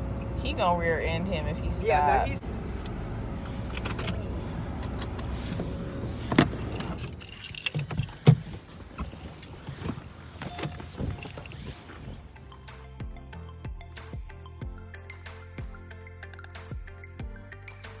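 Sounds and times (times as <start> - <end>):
car cabin rumble: 0.0 - 12.5
keys jangling: 6.4 - 9.8, 10.4 - 12.0.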